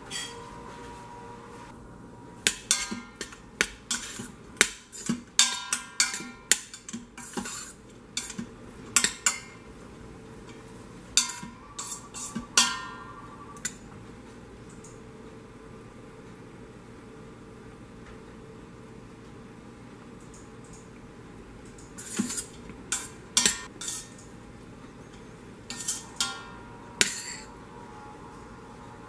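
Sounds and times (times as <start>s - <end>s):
metal spoon scraping a pot: 0.0s - 0.5s, 6.0s - 9.5s, 11.2s - 13.8s, 22.0s - 24.3s, 25.1s - 29.0s.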